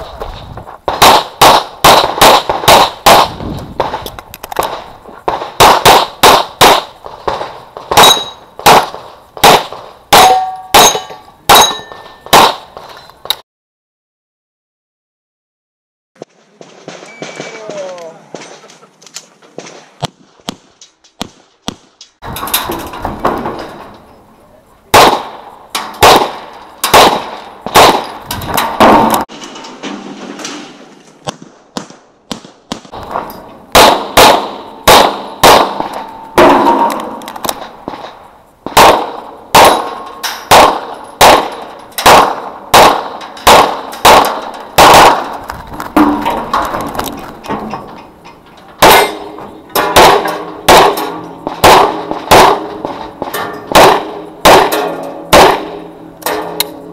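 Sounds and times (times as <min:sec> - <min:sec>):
pistol shots: 0:00.9 - 0:04.0, 0:04.6 - 0:12.7, 0:24.9 - 0:28.2, 0:31.3 - 0:38.1, 0:38.7 - 0:45.4, 0:48.8 - 0:56.4.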